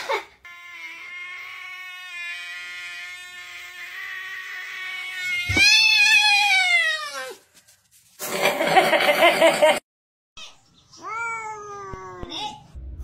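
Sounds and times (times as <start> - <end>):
cat yowling: 3.8 - 7.4.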